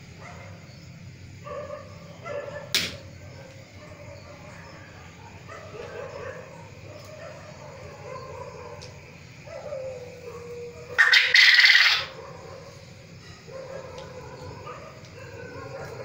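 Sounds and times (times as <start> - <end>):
quail harsh call: 10.9 - 12.2.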